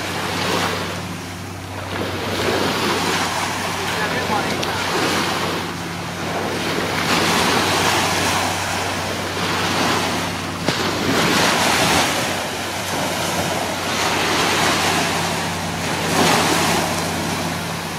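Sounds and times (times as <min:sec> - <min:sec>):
sea surf washing ashore: 0:00.0 - 0:17.9
wind rumbling on microphone: 0:00.0 - 0:17.9.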